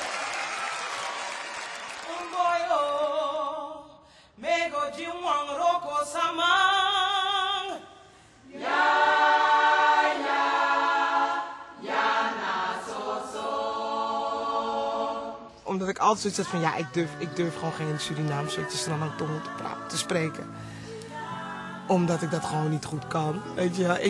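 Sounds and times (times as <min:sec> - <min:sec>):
voices singing a cappella: 0:02.0 - 0:24.0
singers breathing: 0:08.0 - 0:08.5, 0:20.5 - 0:21.2.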